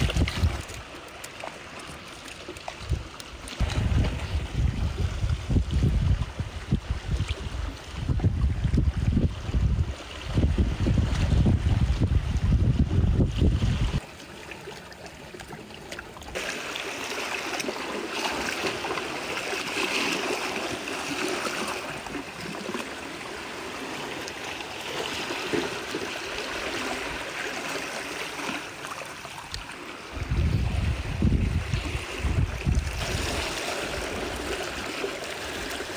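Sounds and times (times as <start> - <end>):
wind buffeting the microphone: 0.0 - 0.8, 2.8 - 14.0, 30.1 - 34.5
water gurgling over rocks: 0.0 - 11.6, 13.9 - 35.9.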